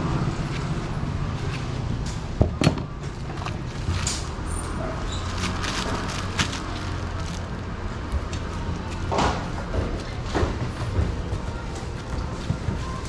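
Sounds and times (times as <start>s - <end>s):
plastic bag crinkling: 5.0s - 7.7s.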